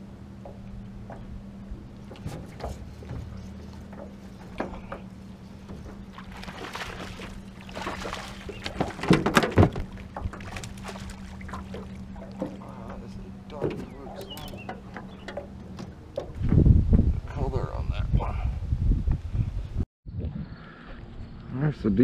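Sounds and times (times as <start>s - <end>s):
steady low hum: 0.0s - 22.0s
fish splashing at water surface: 6.1s - 12.7s
sharp knocks: 7.9s - 10.8s.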